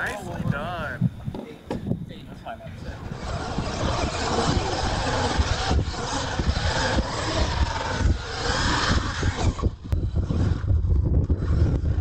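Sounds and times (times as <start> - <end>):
tyres on loose dirt: 2.9 - 12.0
toy truck motor revving: 3.0 - 12.0.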